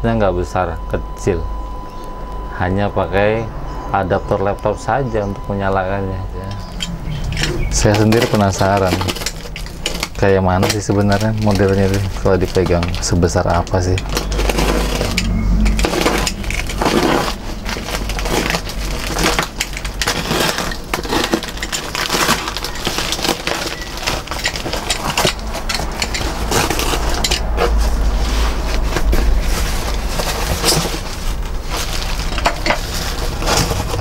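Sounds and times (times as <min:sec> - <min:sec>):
plastic and cardboard tearing: 0:06.6 - 0:34.0.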